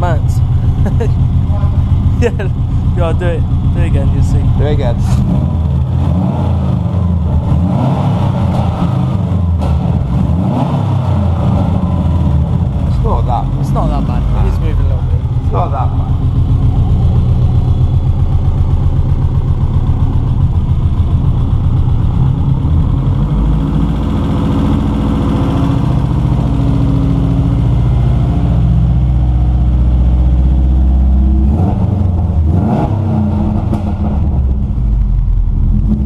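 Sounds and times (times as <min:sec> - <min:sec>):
car engine running: 0:00.0 - 0:36.0.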